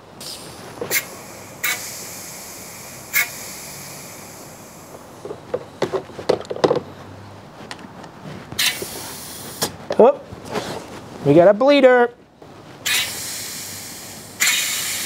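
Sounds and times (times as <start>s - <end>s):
compressed air hissing underwater: 0.2s - 5.2s, 8.6s - 9.7s, 12.8s - 15.0s.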